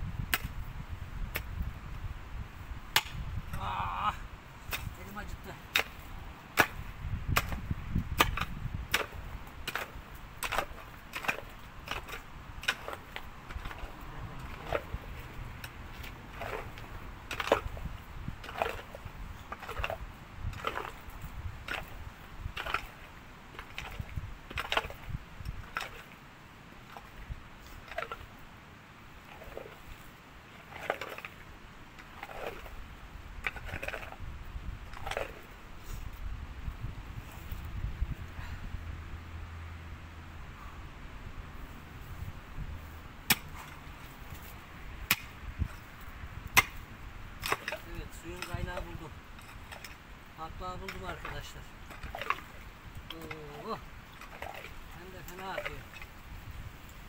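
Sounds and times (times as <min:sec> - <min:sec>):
digging tool striking stony soil: 0:00.2 - 0:00.6, 0:01.3 - 0:01.6, 0:02.9 - 0:03.6, 0:04.7 - 0:15.0, 0:15.6 - 0:26.1, 0:33.4 - 0:34.2, 0:34.9 - 0:35.5, 0:43.2 - 0:50.0, 0:50.8 - 0:56.1.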